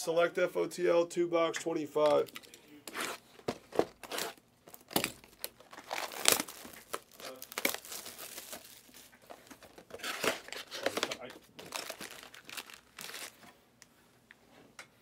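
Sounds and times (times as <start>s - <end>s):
plastic shrink wrap crinkling: 3.4s - 13.5s.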